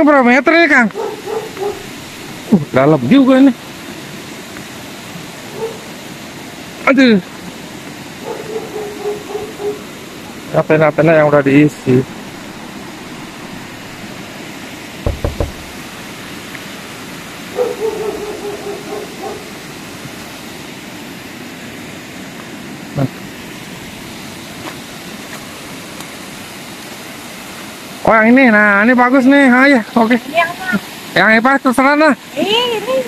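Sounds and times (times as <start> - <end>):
stream water over stone steps: 0.0 - 33.0
low knocks: 15.0 - 16.0.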